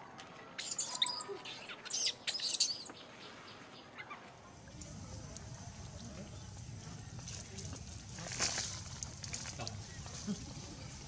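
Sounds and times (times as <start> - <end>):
monkey squealing: 0.6 - 2.9.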